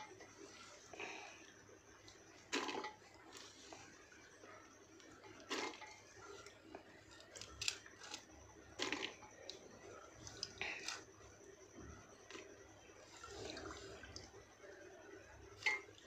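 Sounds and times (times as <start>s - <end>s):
water dripping: 9.1s - 11.0s, 11.8s - 16.0s.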